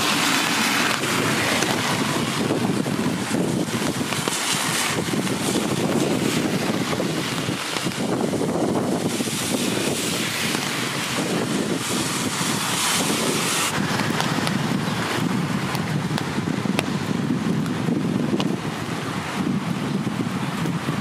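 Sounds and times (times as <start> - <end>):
cars passing on wet road: 0.0 - 21.0
wind buffeting microphone: 0.0 - 21.0.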